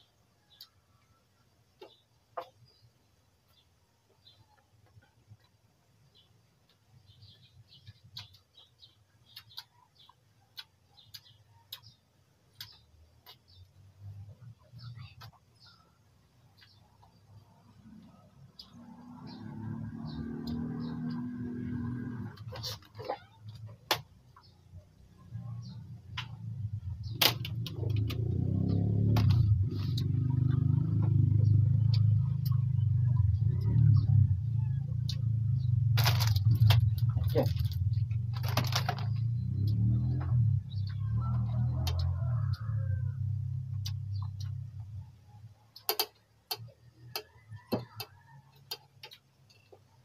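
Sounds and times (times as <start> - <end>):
small clicks: 45.7 - 49.9.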